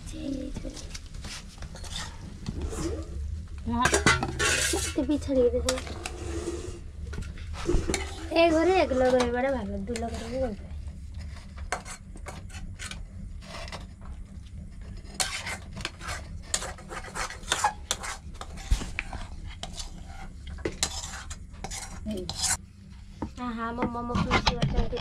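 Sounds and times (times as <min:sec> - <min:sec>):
low steady hum: 0:00.0 - 0:25.0
metal spatula scraping a pan: 0:01.3 - 0:03.2, 0:03.8 - 0:06.8, 0:07.5 - 0:09.3, 0:11.2 - 0:13.8, 0:15.0 - 0:22.6.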